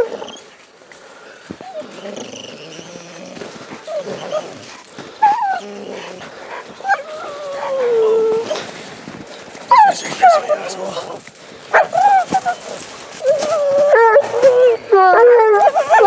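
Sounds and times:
hounds whining and yelping: 0:00.0 - 0:00.6, 0:01.5 - 0:08.7, 0:09.4 - 0:11.0, 0:11.7 - 0:16.0
dog howling: 0:05.2 - 0:08.6, 0:11.8 - 0:16.0.

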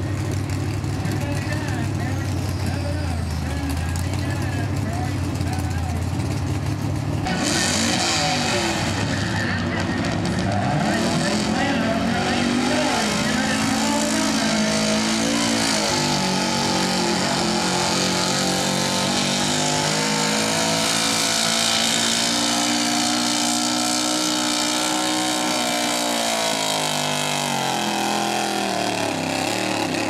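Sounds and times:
pickup engine revving hard: 0:07.3 - 0:30.0.

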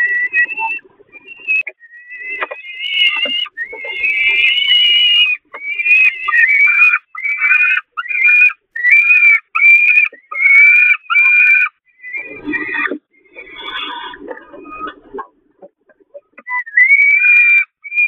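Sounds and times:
falcon chicks begging calls: 0:01.4 - 0:15.2.

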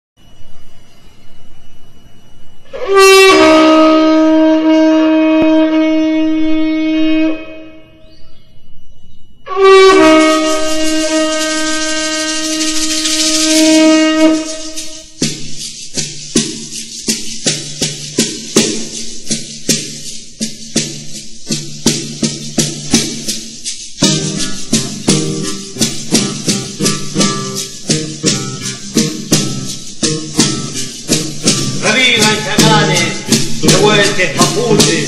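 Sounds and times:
horn-like wind instrument notes: 0:02.6 - 0:08.0, 0:09.4 - 0:15.2, 0:24.0 - 0:35.0
sharp rhythmic strikes: 0:09.6 - 0:35.0.

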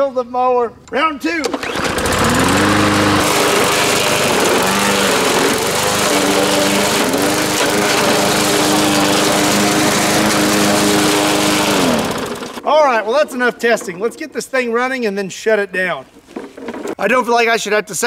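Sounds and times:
lawn mower engine running: 0:01.4 - 0:12.7.

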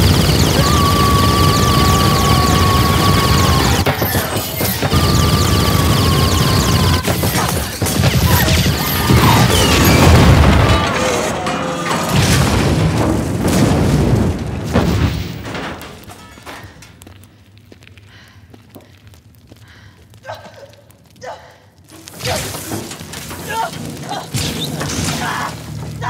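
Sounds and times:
heavy booms and crashing impacts: 0:00.0 - 0:16.4.

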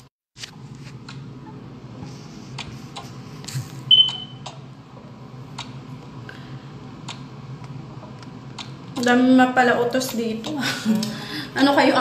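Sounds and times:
high electronic beep: 0:03.9 - 0:04.4.

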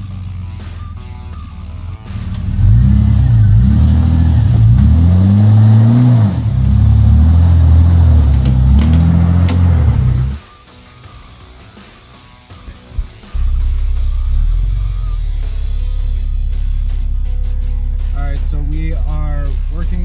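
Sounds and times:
engine revving up and down: 0:01.9 - 0:10.4, 0:13.0 - 0:20.0.

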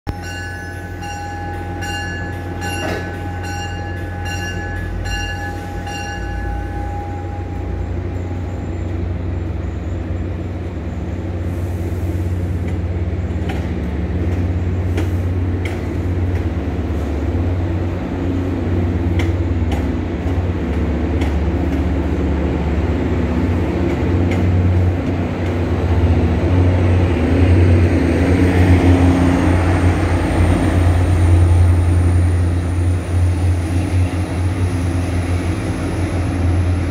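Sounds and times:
bell ringing: 0:00.1 - 0:08.6
locomotive engine droning: 0:00.1 - 0:36.9
rolling rail noise: 0:00.1 - 0:36.9.

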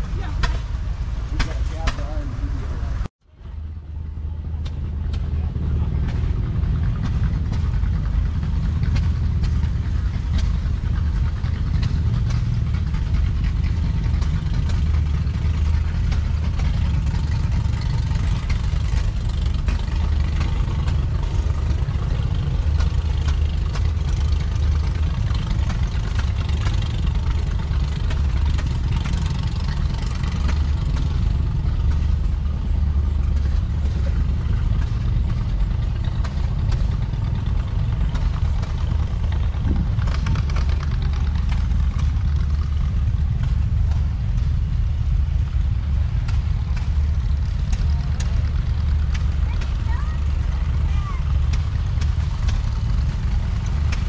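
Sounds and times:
tractor engine idling: 0:00.0 - 0:54.0.

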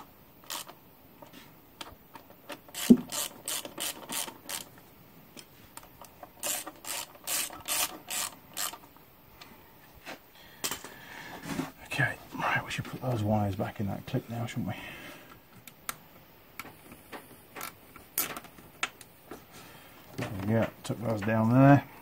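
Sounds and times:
hand ratchet clicking: 0:00.4 - 0:00.8, 0:02.7 - 0:04.7, 0:06.4 - 0:08.9.

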